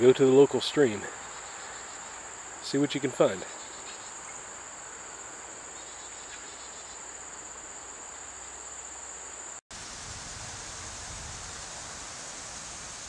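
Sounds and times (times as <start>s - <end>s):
insects singing: 0.0s - 9.6s
creek water hissing: 0.0s - 13.0s.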